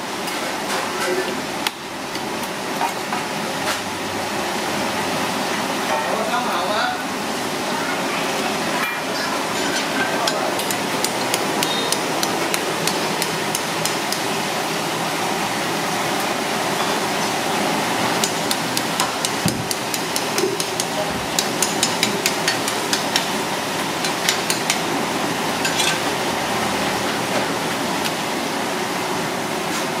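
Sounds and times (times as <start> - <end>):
faint constant hum: 0.0 - 30.0
sharp knocks and taps: 18.2 - 23.3.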